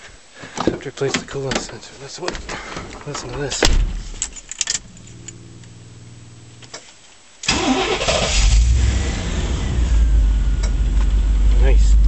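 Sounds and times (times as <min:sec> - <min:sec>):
steady hum: 0:03.4 - 0:06.9
truck engine cranking and rumbling: 0:07.5 - 0:12.0.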